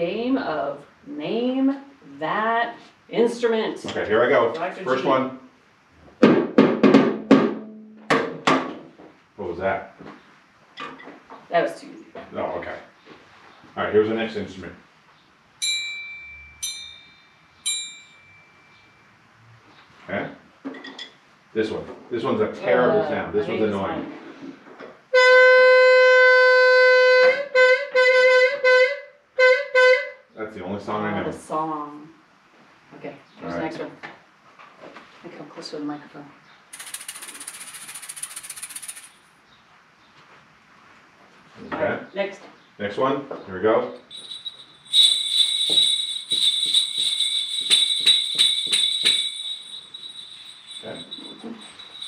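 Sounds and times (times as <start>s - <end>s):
jingle bells shaken: 36.8s - 39.2s, 44.1s - 52.0s.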